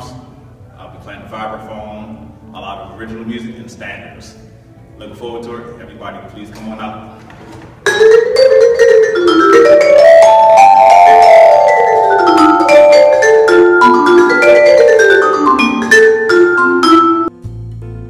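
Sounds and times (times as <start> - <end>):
vibraphone played with mallets: 7.8 - 17.4.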